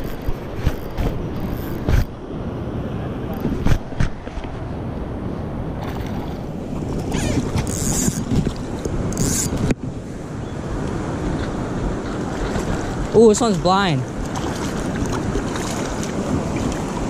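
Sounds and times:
wind rumbling on microphone: 0:00.0 - 0:17.0
river water rushing: 0:05.7 - 0:17.0.

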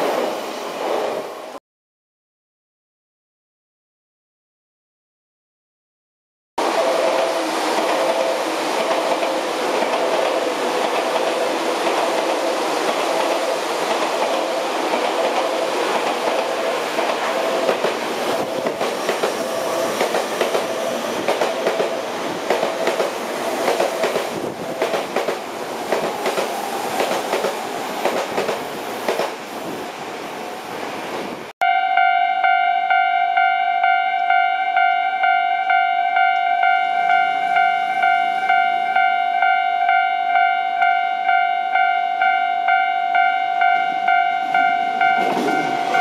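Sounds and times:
electric train running: 0:06.6 - 0:29.3, 0:44.4 - 0:46.0.

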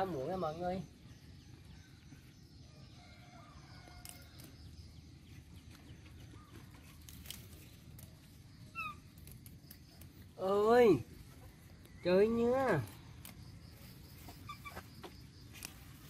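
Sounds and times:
faint bird chirps: 0:00.0 - 0:16.0
stems snapping: 0:03.9 - 0:04.7, 0:06.7 - 0:10.6, 0:11.8 - 0:13.7, 0:15.0 - 0:16.0.

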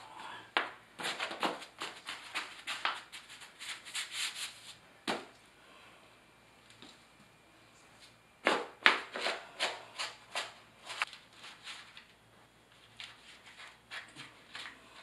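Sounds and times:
membrane rustling and scraping: 0:09.1 - 0:15.0.

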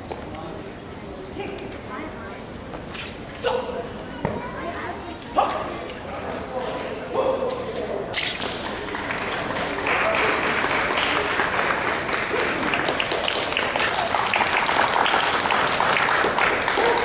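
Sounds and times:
voices chattering: 0:00.3 - 0:13.0
audience applauding: 0:08.7 - 0:17.0.

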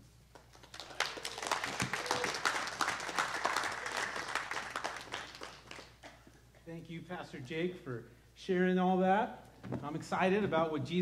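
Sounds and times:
congregation applauding: 0:00.3 - 0:06.2.

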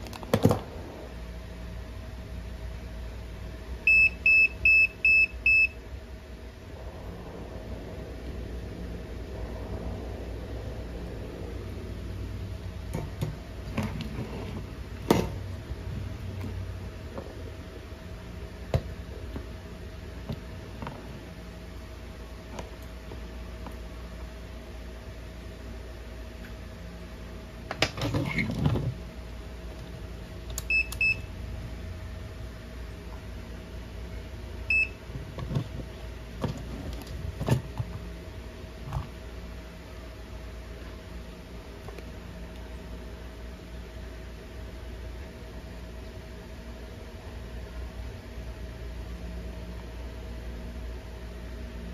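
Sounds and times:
steady low hum: 0:00.0 - 0:51.9
clamp meter beeping: 0:03.9 - 0:05.8, 0:30.6 - 0:31.3.

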